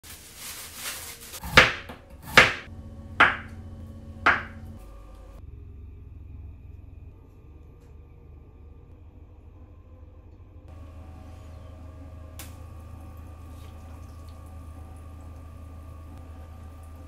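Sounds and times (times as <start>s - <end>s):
soft rustle: 0.0s - 1.4s
knife striking cutting board: 1.4s - 3.5s, 4.3s - 4.6s.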